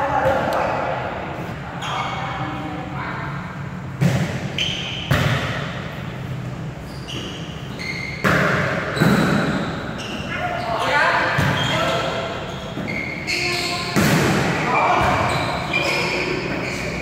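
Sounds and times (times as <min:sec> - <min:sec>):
volleyball smacks echoing in a gym: 0:00.0 - 0:00.9, 0:03.8 - 0:06.2, 0:07.1 - 0:10.3, 0:11.1 - 0:17.0.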